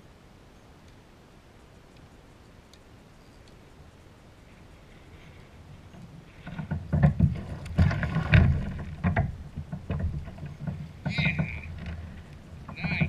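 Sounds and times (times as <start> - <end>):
water splashing: 6.0 - 13.0.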